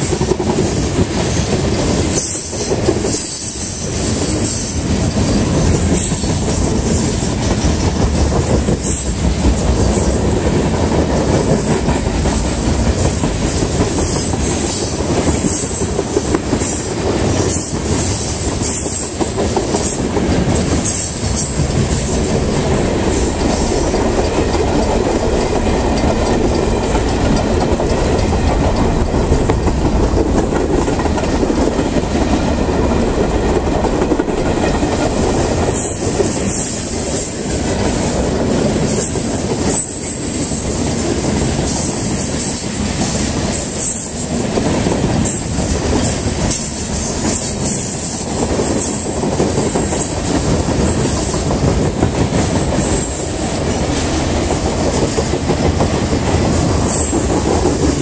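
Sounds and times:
freight train wheels clattering: 0.0s - 58.0s
high wheel squeal: 38.8s - 40.7s.

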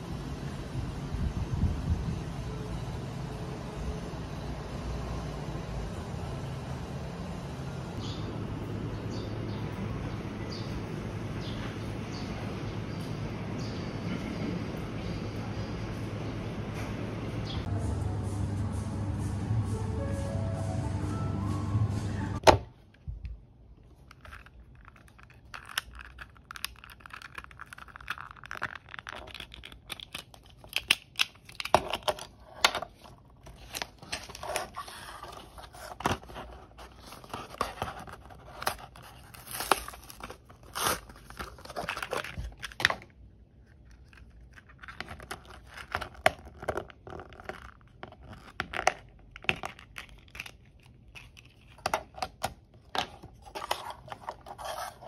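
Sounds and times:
plastic packaging crinkling: 24.0s - 55.0s
packaging tearing: 24.1s - 43.0s.

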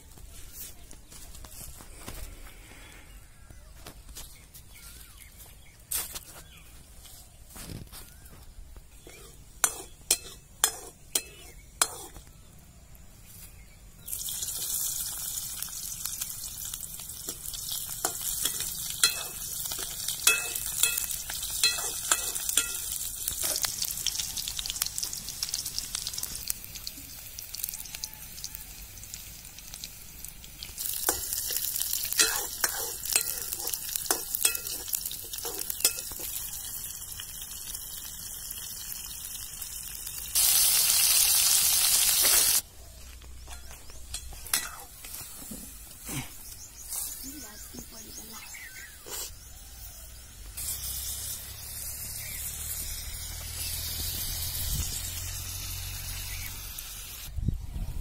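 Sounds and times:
onions sizzling in oil: 8.0s - 12.3s, 13.3s - 57.3s
ladle scraping and tapping pan: 9.1s - 12.2s, 18.0s - 23.7s, 31.0s - 36.4s, 43.5s - 45.6s.

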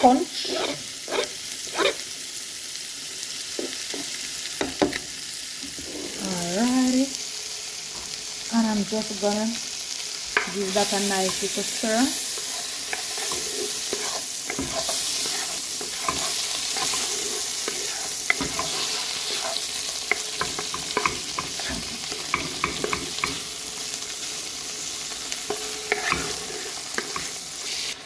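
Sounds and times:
food sizzling in butter: 0.0s - 28.0s
spoon scraping metal pot: 12.2s - 23.4s, 25.5s - 27.4s.

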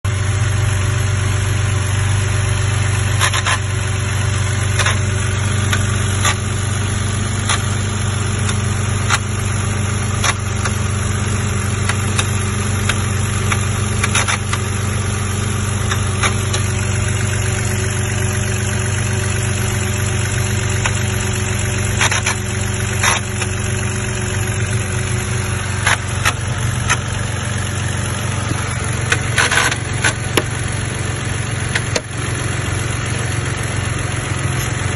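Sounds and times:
car engine idling: 0.1s - 34.9s
sharp engine clicks: 4.4s - 24.0s, 24.6s - 30.8s, 31.6s - 32.2s.

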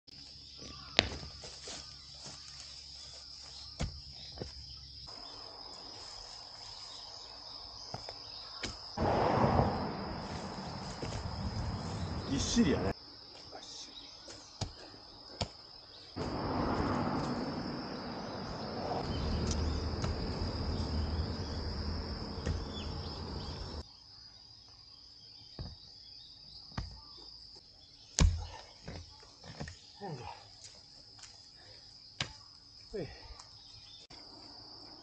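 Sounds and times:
high insect trill: 0.1s - 35.0s
rushing noise: 9.0s - 12.9s
hoe chopping into hard soil: 22.4s - 22.8s.

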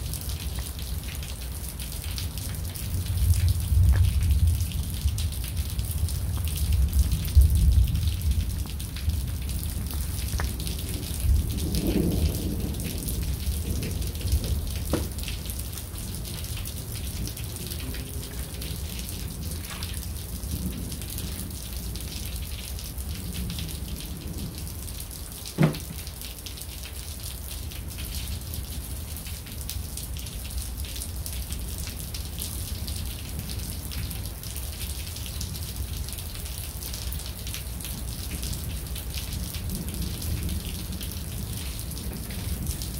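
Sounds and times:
steady rain: 0.0s - 42.9s
low thunder rumble: 2.8s - 25.2s.

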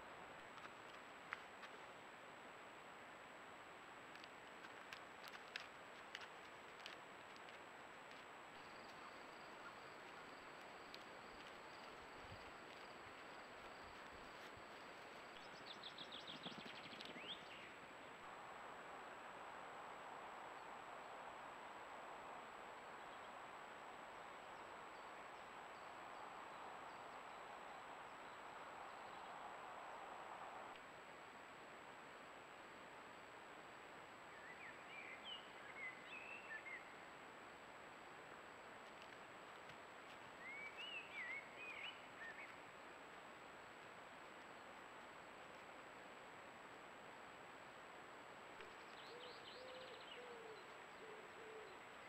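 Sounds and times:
microphone hiss: 0.0s - 52.0s
animal ticks and rustles: 0.3s - 2.0s, 4.0s - 17.5s, 38.6s - 40.5s, 43.8s - 46.8s.

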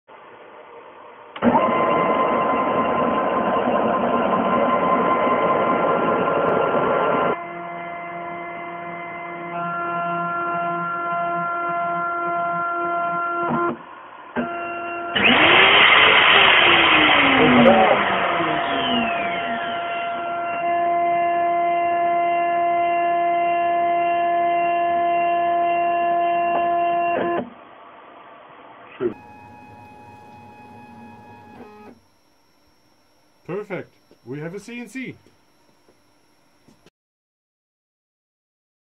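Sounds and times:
cnc mill axes whirring: 1.4s - 25.7s, 29.0s - 36.9s
steady motor hum: 15.2s - 22.9s, 29.0s - 36.9s.

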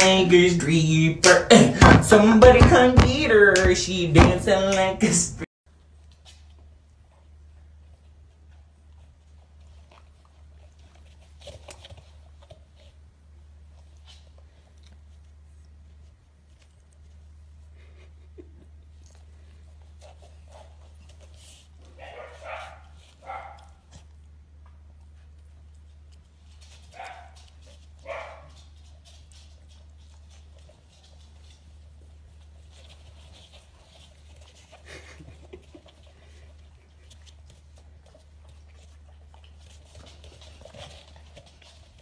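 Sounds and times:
puppies scuffling and tapping: 5.7s - 42.0s
puppy barking: 22.0s - 24.0s, 26.9s - 28.6s.

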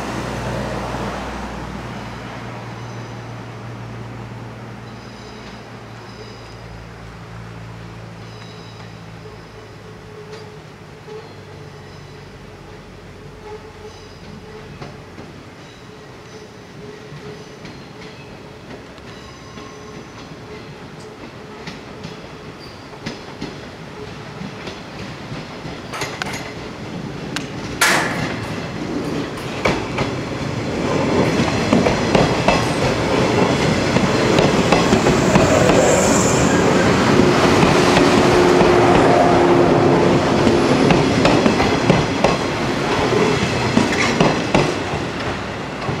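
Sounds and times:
train passing: 0.0s - 46.0s
wheels clacking over rail joints: 17.1s - 39.2s, 40.3s - 46.0s.

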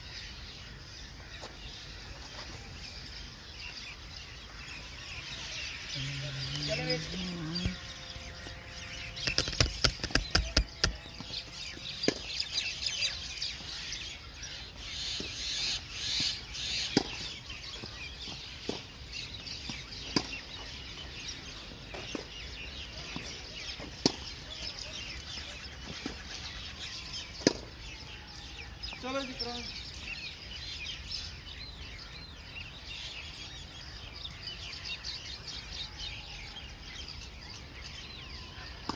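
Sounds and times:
flock of birds chattering: 0.0s - 38.9s
tennis balls struck by rackets: 12.0s - 12.3s, 16.2s - 17.4s, 19.6s - 20.4s, 23.1s - 24.3s, 27.4s - 27.7s.

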